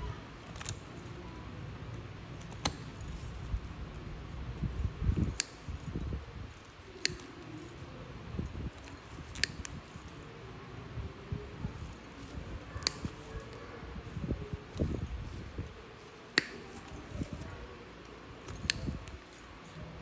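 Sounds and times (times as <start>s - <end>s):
nail nippers snipping: 0.4s - 0.9s, 2.4s - 3.3s, 5.1s - 5.9s, 6.6s - 7.7s, 8.8s - 10.0s, 11.7s - 13.6s, 14.7s - 17.4s, 18.1s - 19.8s.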